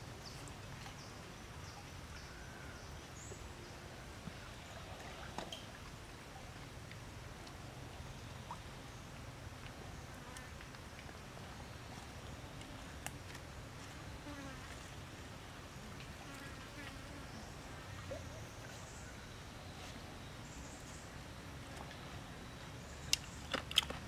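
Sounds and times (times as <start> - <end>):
faint clicks: 23.0 - 24.0.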